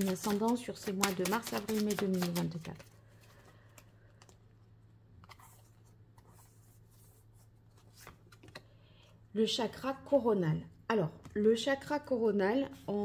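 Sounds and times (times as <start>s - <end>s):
cards clicking and rustling: 0.0s - 4.5s, 7.8s - 8.7s.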